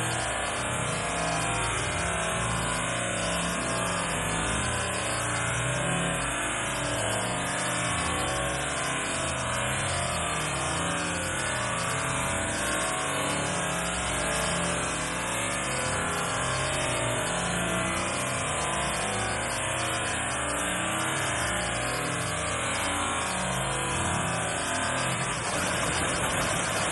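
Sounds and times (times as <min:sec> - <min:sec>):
waterfall rushing into pool: 0:24.2 - 0:26.9.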